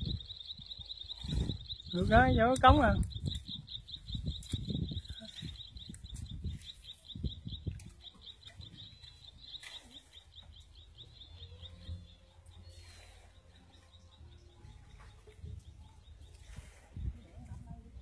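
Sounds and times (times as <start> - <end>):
small animal chirping: 0.0 - 11.8.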